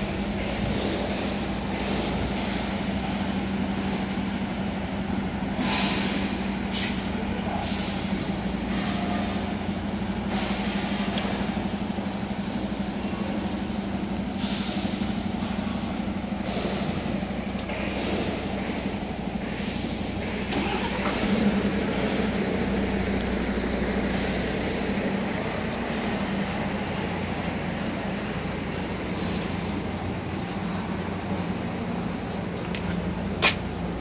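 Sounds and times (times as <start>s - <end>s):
truck diesel engine idling: 0.0s - 34.0s
air hissing: 5.6s - 8.6s.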